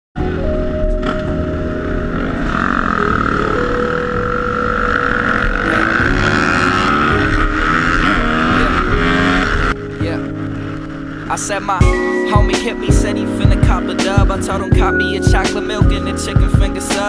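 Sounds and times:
dirt bike engines revving: 0:01.0 - 0:17.0.

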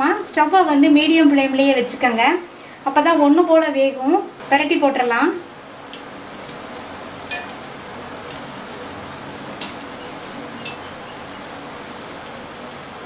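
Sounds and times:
food deep-frying in oil: 0:04.8 - 0:13.0
skimmer clinking against metal pan: 0:07.3 - 0:07.6, 0:10.6 - 0:11.0.

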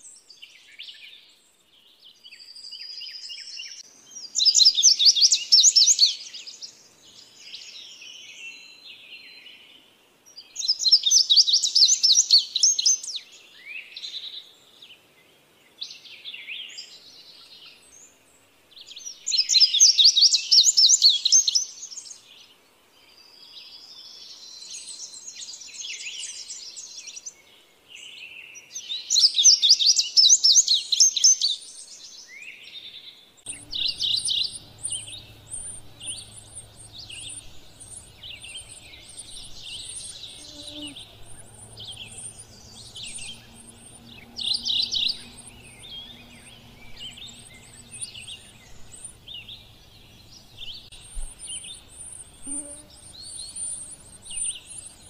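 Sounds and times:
faint bird song: 0:00.0 - 0:55.0
bird singing high clear notes: 0:33.5 - 0:55.0.

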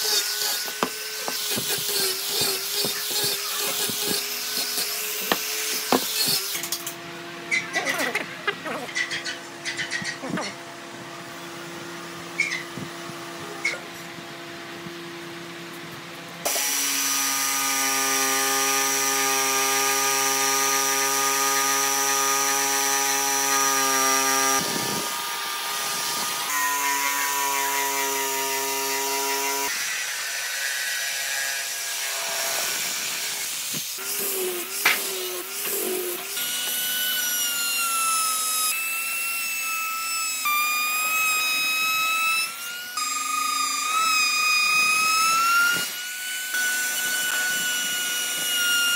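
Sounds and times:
jigsaw cutting wood: 0:00.0 - 0:06.9, 0:16.5 - 0:30.6, 0:31.7 - 0:48.9
router whining: 0:00.0 - 0:13.9, 0:16.4 - 0:48.9.

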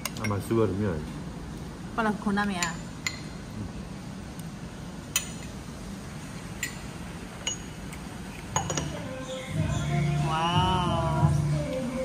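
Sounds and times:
cutlery clinking against plates: 0:06.6 - 0:09.0.

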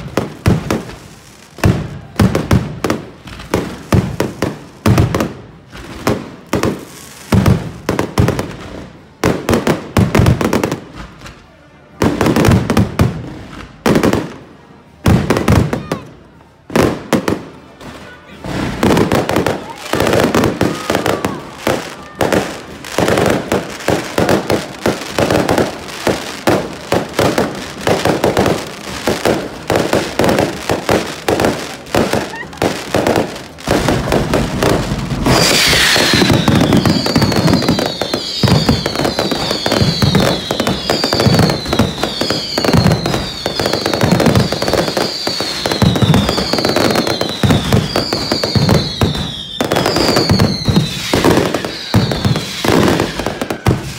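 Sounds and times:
firecracker bangs and crackling: 0:00.0 - 0:53.9
firework hiss: 0:22.5 - 0:53.9
falling firework whistles: 0:32.0 - 0:53.9.

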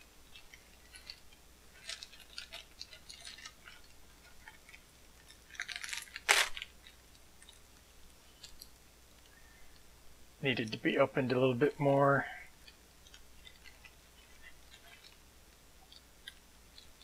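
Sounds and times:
plastic bubble mailer crinkling: 0:00.3 - 0:07.6.

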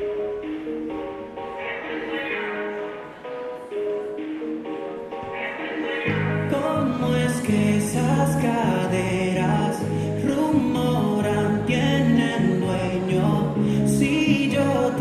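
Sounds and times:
dance music with singing: 0:00.0 - 0:15.0
heavy bass line: 0:00.0 - 0:15.0.

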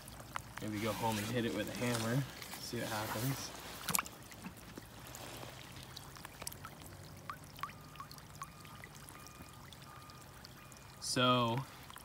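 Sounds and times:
river water trickling: 0:00.0 - 0:12.0
water drop plinks: 0:06.0 - 0:12.0.

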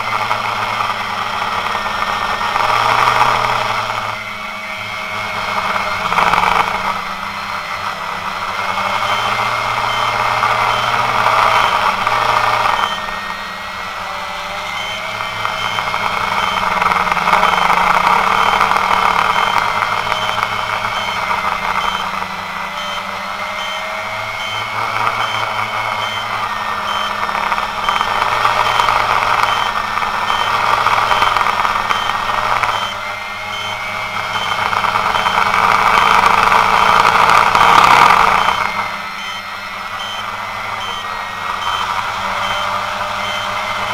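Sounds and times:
drone propellers whining: 0:00.0 - 0:43.9.

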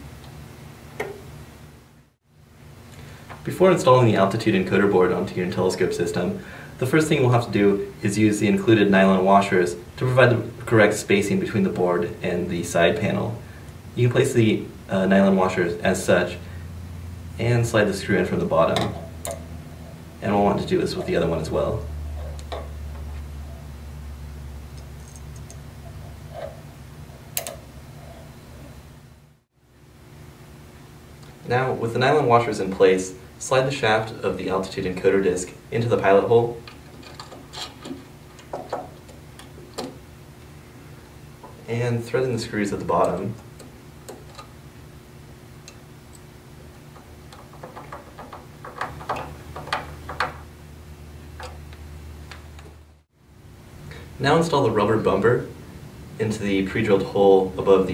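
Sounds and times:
steady low hum: 0:00.0 - 0:57.9
screws clicking and tapping: 0:47.0 - 0:50.4.

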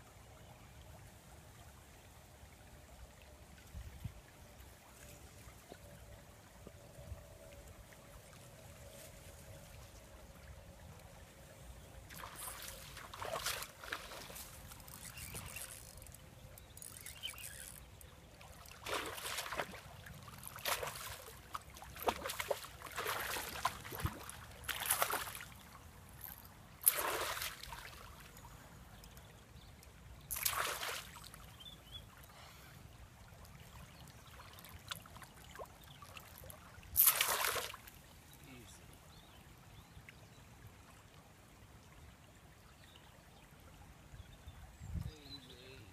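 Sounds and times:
flowing water: 0:00.0 - 0:45.9
fish splashing in water: 0:18.5 - 0:25.5, 0:26.2 - 0:28.1, 0:30.3 - 0:31.2, 0:37.0 - 0:37.8.

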